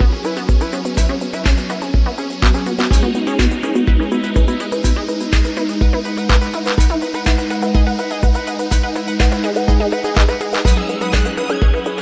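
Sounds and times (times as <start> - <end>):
electronic music: 0.0 - 12.0
kick drum beat: 0.0 - 12.0.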